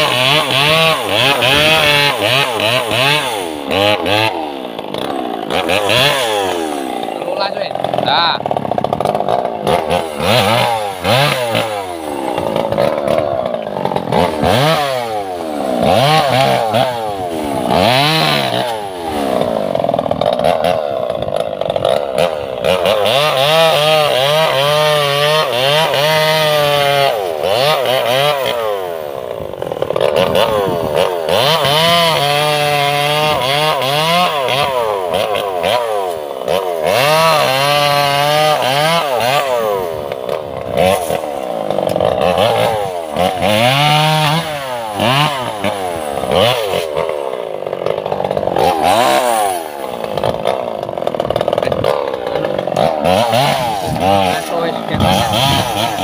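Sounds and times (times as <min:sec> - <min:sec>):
chainsaw cutting logs: 0:00.0 - 0:56.0.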